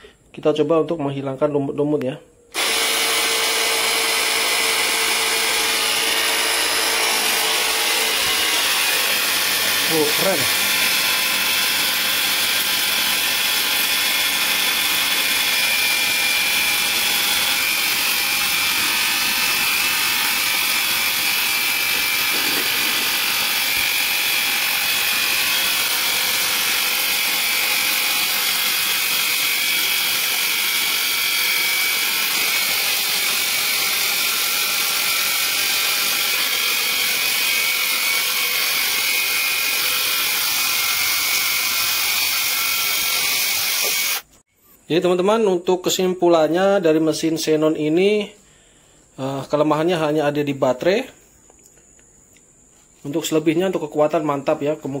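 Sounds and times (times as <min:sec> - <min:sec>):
pressure washer whining: 0:02.5 - 0:44.4.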